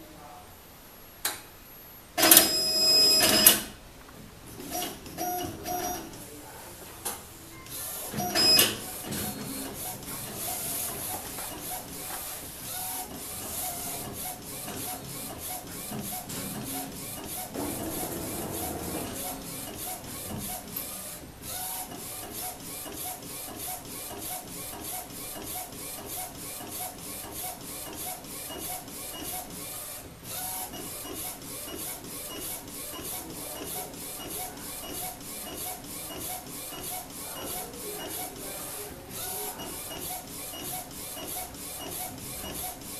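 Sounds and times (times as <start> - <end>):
printer carriage shuttling: 8.1 - 11.9, 13.4 - 20.8.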